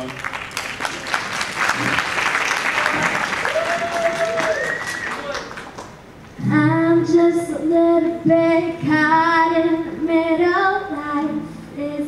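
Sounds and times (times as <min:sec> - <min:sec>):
acoustic guitar: 0:06.2 - 0:12.0
girl singing into microphone: 0:06.4 - 0:12.0.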